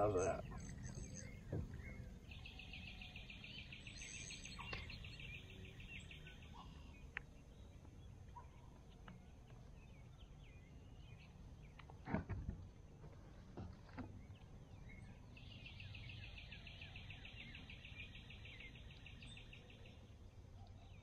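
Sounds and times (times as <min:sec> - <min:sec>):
bird chirps: 0:00.0 - 0:07.8, 0:14.2 - 0:20.0.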